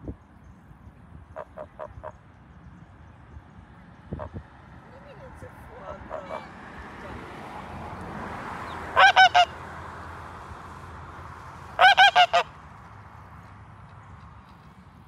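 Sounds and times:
goose honking: 1.3 - 2.2, 6.0 - 6.6, 8.9 - 9.6, 11.8 - 12.6.

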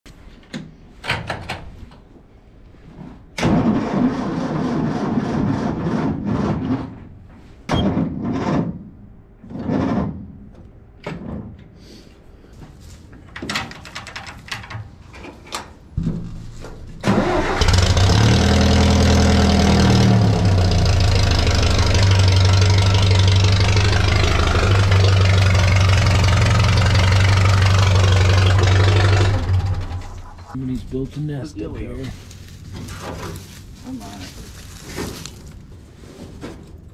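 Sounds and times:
tractor engine cranking and running: 3.4 - 6.7, 13.3 - 30.6.

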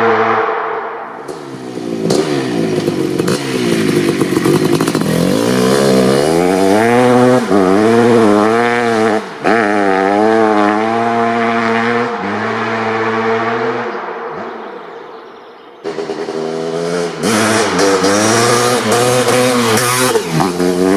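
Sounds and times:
two-stroke engine revving: 1.3 - 14.0, 15.8 - 20.9.

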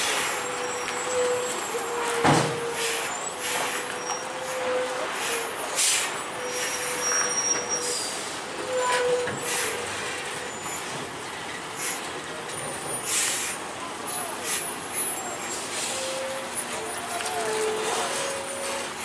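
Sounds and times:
truck trailer squealing: 0.0 - 19.0
air brake hisses: 2.0 - 10.9, 11.8 - 12.1, 13.0 - 13.6.

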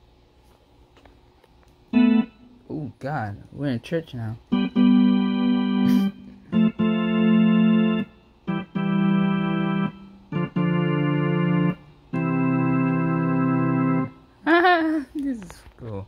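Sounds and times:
keyboard organ chords: 1.9 - 3.4, 4.3 - 14.6.

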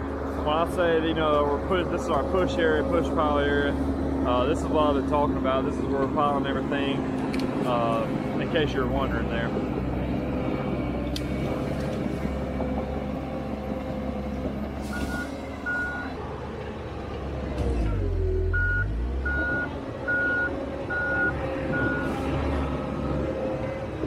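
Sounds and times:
diesel engine running: 0.0 - 24.0
reverse alarm beeping: 14.9 - 16.1, 17.9 - 22.1.

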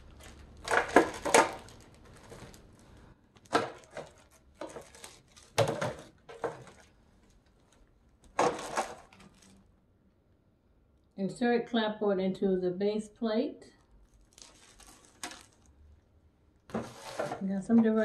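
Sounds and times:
plastic bags crinkling: 0.0 - 9.8, 13.8 - 16.0.

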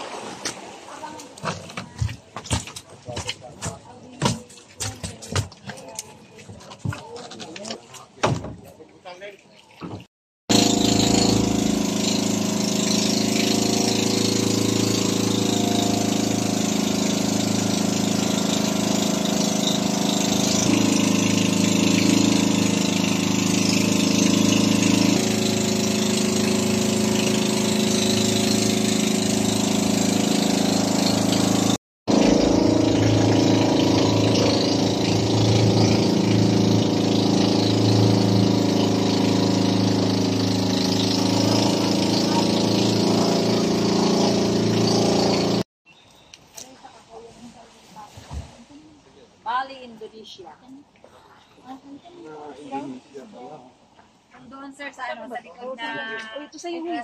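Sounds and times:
wind and water hiss: 0.0 - 1.5
boat engine running: 10.5 - 45.7.

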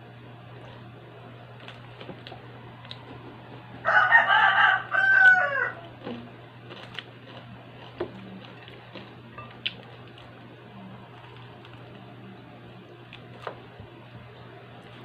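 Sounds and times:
rooster crowing: 3.8 - 6.0.

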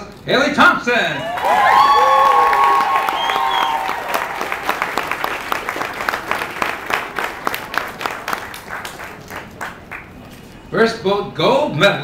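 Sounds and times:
audience applauding: 1.2 - 10.2.

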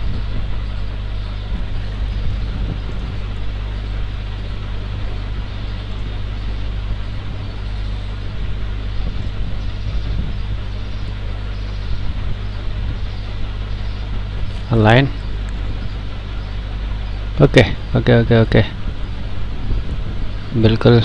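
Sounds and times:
low electrical hum: 0.0 - 21.0
microphone hiss: 0.0 - 21.0.

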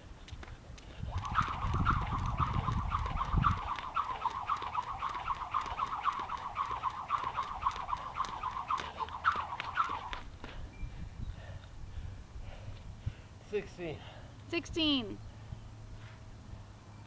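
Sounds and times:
jump rope whipping: 0.2 - 10.6.

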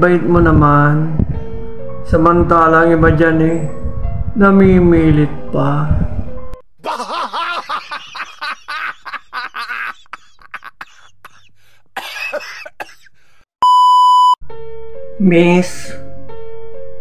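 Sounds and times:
music: 0.0 - 6.6, 14.4 - 17.0
man laughing: 6.8 - 12.8
electronic beep: 13.6 - 14.4.

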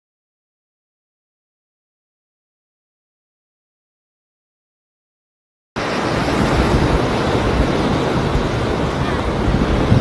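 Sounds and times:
wind buffeting microphone: 5.8 - 10.0.

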